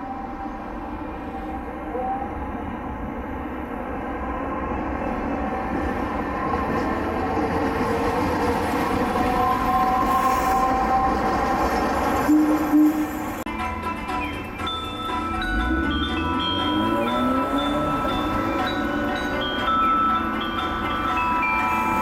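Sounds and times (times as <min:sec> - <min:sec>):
streetcar rumbling past: 0:00.0 - 0:22.0
wheels squealing: 0:06.2 - 0:13.4, 0:14.1 - 0:22.0.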